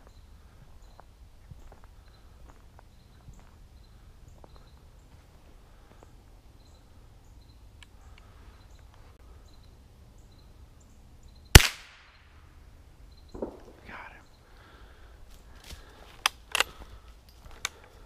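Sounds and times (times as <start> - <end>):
rifle shot: 11.5 - 12.2, 13.3 - 13.8.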